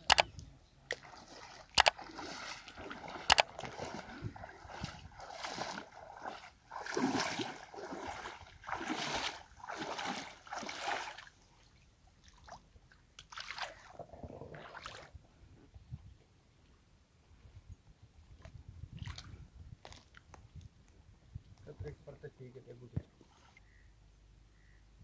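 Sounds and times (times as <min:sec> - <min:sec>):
river water splashing: 0:00.9 - 0:12.6, 0:13.2 - 0:15.1.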